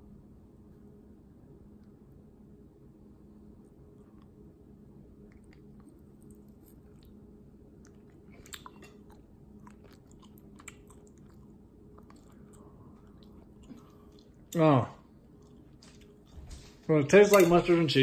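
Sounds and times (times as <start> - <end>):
person chewing food: 5.2 - 14.6, 15.2 - 16.6.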